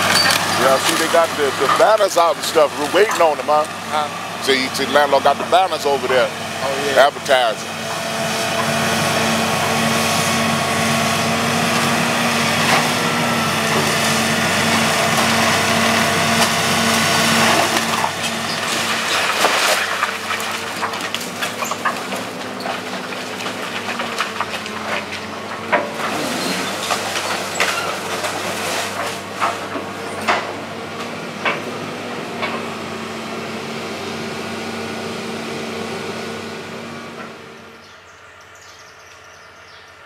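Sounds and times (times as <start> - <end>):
excavator diesel engine running: 0.0 - 40.0
wood cracking and snapping: 13.7 - 30.5.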